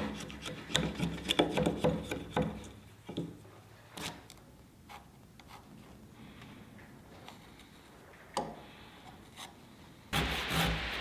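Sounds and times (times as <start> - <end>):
chisel scraping wood: 0.0 - 2.7.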